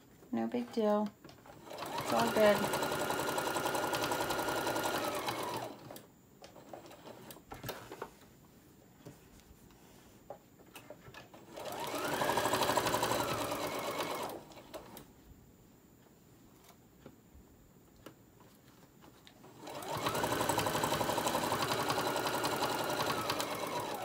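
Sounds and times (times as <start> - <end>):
sewing machine stitching: 1.4 - 7.8, 11.4 - 15.0, 19.5 - 24.0.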